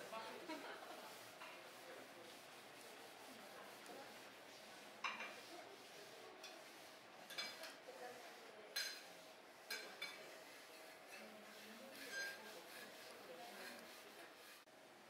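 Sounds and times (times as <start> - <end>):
cutlery clinking against china: 7.3 - 7.8, 8.8 - 9.0, 9.7 - 10.3, 12.0 - 12.4.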